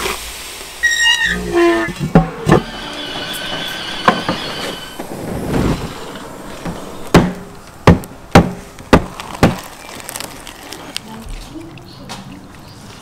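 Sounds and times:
crust cracking: 5.0 - 11.9
tool knocking salt crust: 7.2 - 9.6.

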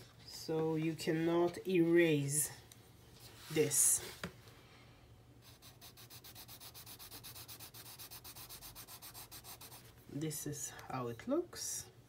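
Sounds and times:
pencil scratching on paper: 5.4 - 9.8.

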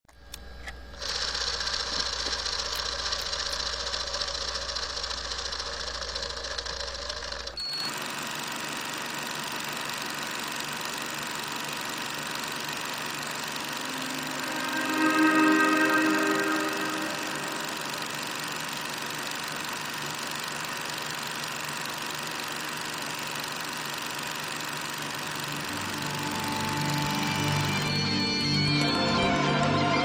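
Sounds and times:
film projector clatter: 0.9 - 14.0, 17.1 - 29.0
low hum: 13.6 - 19.0.

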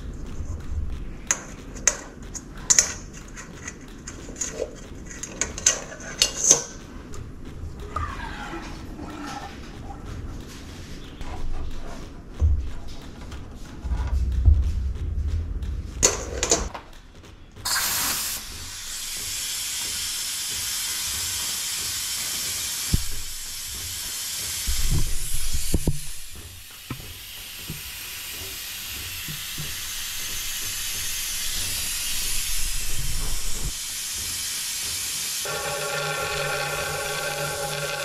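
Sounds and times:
low handling thuds: 11.5 - 17.4
vacuum pump hose hissing: 17.7 - 38.0.

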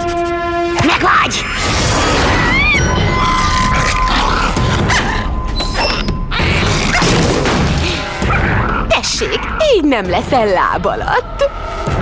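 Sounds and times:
background music: 0.0 - 12.0
cartoon creaking and clanks: 1.6 - 8.7.

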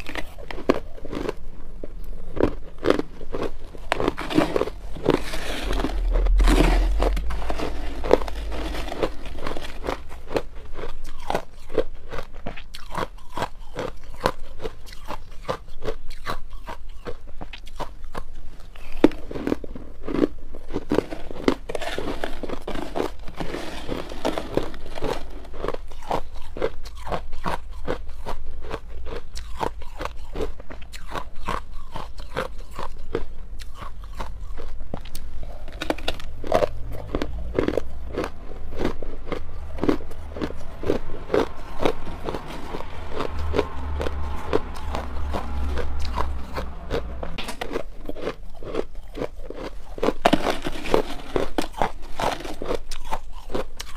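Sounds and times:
crushed ice crunching: 2.4 - 14.3, 18.8 - 28.0, 33.8 - 53.9.

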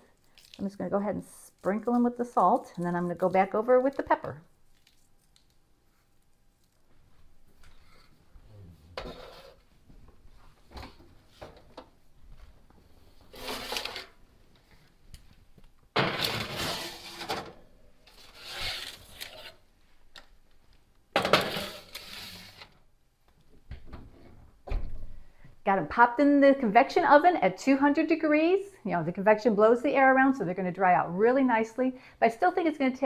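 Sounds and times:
metal baking sheets scraping racks: 9.0 - 9.6, 13.3 - 14.2, 16.0 - 19.6, 21.2 - 22.7.

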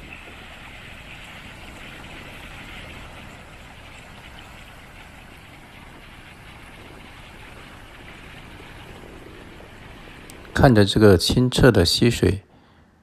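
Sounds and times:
stream splashing over rock: 0.0 - 11.5.

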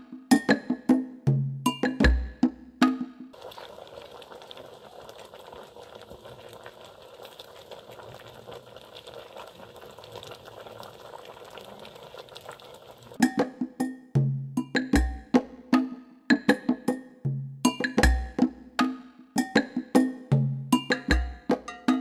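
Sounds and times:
music with wood-block beat: 0.0 - 3.4, 13.2 - 22.0
pot bubbling over wood fire: 3.4 - 13.2.

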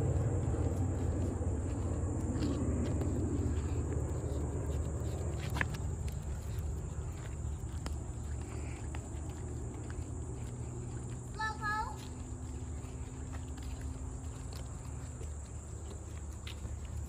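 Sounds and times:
low rumble: 0.0 - 11.4
footsteps on paved path: 0.0 - 17.0.

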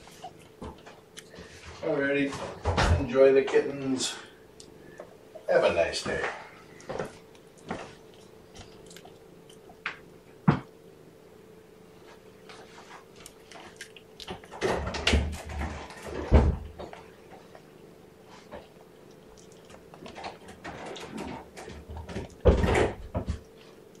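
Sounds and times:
faint steady hum: 0.0 - 24.0
knocks and rustling: 12.4 - 17.7, 19.6 - 23.8.

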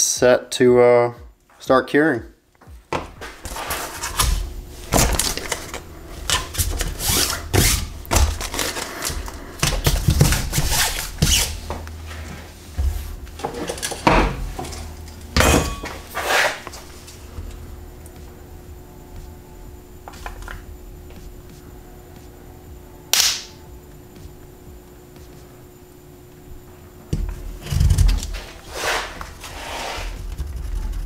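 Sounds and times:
low steady hum: 2.1 - 31.0
parts knocking on wooden workbench: 2.9 - 3.3, 13.4 - 14.7.

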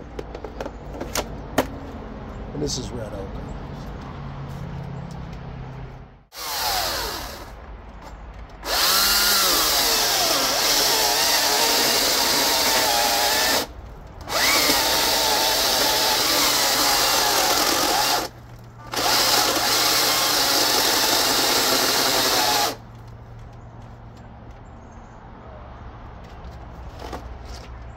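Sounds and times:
chainsaw cutting a log: 6.3 - 7.6, 8.6 - 13.7, 14.3 - 22.8.

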